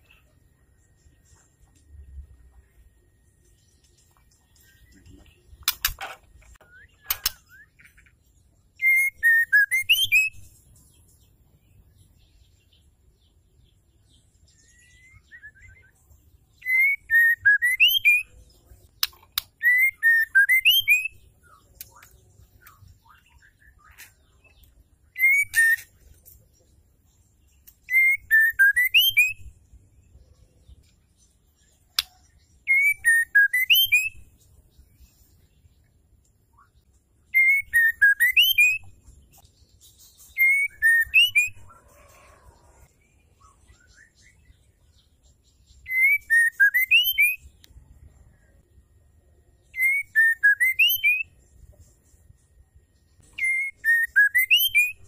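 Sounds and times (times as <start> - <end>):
sharp clicks: 5.6 - 7.4
bird whistling calls: 8.8 - 10.4, 16.6 - 18.3, 19.6 - 21.2, 25.2 - 25.9, 37.4 - 38.9, 40.3 - 42.1, 45.9 - 47.4, 49.8 - 51.3, 53.4 - 55.0.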